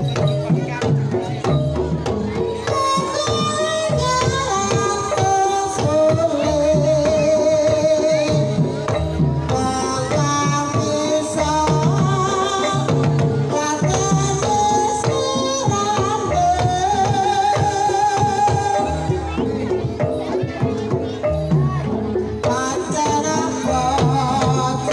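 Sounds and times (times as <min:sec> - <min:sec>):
gamelan ensemble: 0:00.0 - 0:24.9
hand drumming: 0:00.0 - 0:24.9
woman singing wavering melody: 0:02.5 - 0:08.6, 0:09.5 - 0:19.4.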